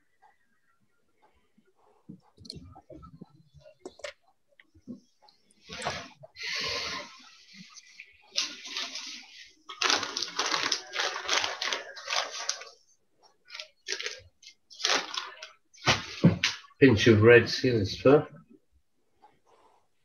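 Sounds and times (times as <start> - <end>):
plastic packet crinkling: 8.3 - 12.8, 13.4 - 15.6.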